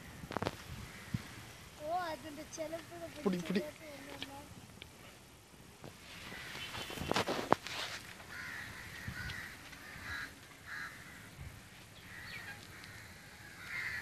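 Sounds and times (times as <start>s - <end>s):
crows cawing: 0.0s - 2.1s, 6.2s - 7.2s, 8.2s - 14.0s.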